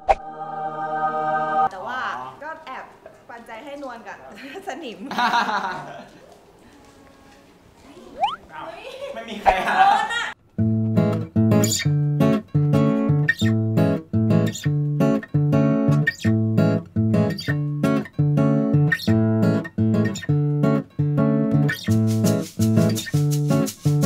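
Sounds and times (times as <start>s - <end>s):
acoustic guitar strumming chords: 10.6s - 24.0s.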